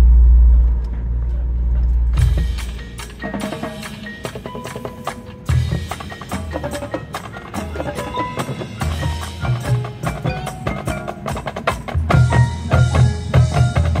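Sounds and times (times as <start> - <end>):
low pulsing bass line: 0.0 - 2.8
sharp percussion hits: 0.0 - 14.0
marching band playing: 0.4 - 14.0
mallet percussion: 1.8 - 14.0.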